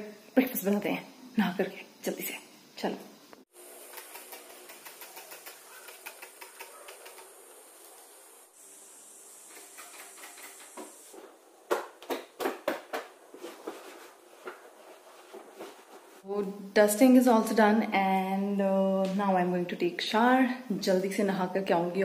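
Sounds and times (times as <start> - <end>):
faint steady hiss: 0.0 - 11.9.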